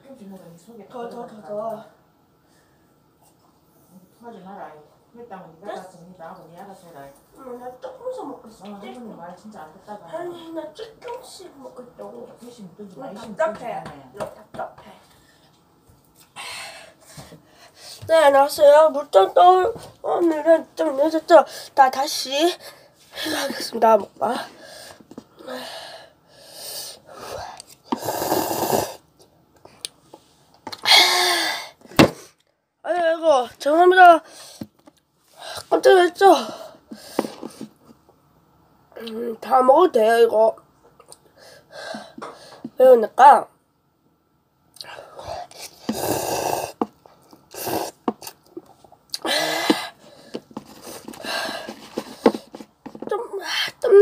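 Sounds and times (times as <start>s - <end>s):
person breathing noisily: 24.5s - 29.0s, 49.2s - 52.6s.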